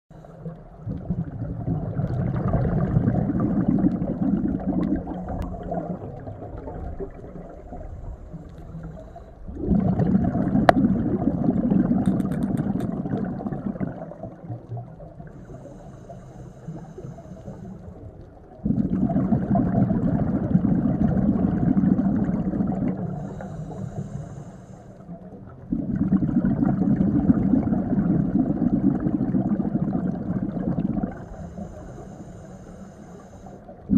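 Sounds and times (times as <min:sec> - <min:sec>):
exhaled bubbles rushing underwater: 0:00.4 - 0:33.9
diver inhaling with faint hiss: 0:08.0 - 0:09.5, 0:15.3 - 0:18.0, 0:23.0 - 0:25.2, 0:31.1 - 0:33.9.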